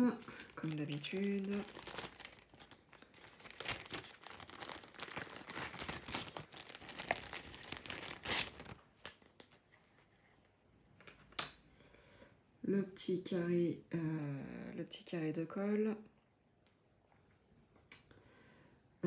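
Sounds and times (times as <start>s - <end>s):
plastic bags crinkling: 0.0s - 9.6s.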